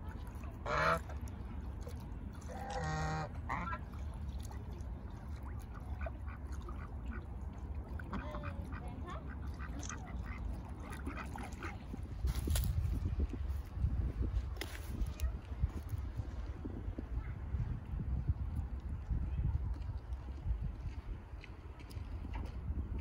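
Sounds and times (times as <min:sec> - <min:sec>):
geese and ducks calling: 0:00.6 - 0:01.2, 0:02.4 - 0:04.0
wind gust on microphone: 0:11.1 - 0:23.0.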